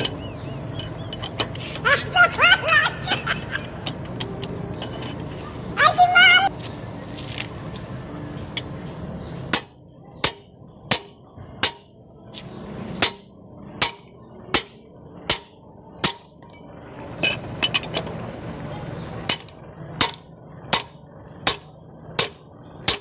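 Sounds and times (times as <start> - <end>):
hammer striking metal wrench: 8.4 - 12.0, 13.0 - 18.0, 19.3 - 23.0.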